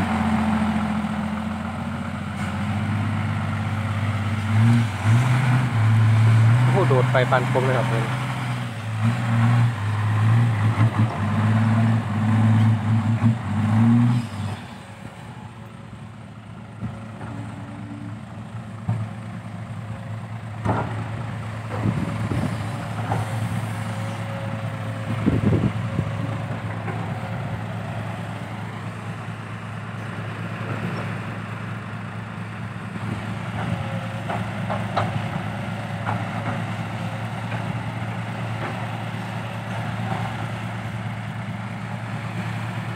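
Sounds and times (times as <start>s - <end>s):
diesel truck engine revving: 0.0s - 15.7s, 16.6s - 42.9s.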